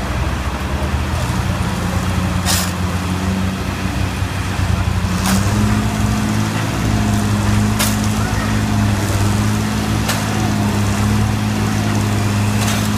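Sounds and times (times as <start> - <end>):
drill rig engine running: 0.0 - 12.9
shovel scraping loose soil: 2.4 - 2.8.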